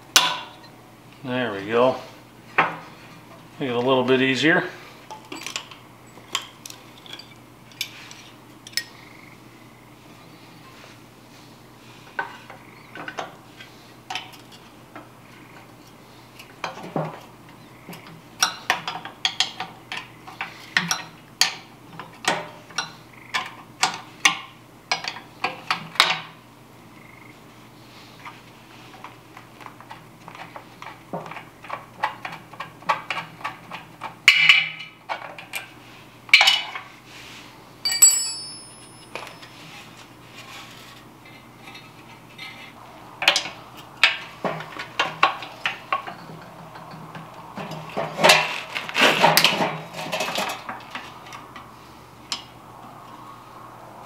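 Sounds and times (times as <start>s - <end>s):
wrench clinking on metal fittings: 37.9s - 39.6s.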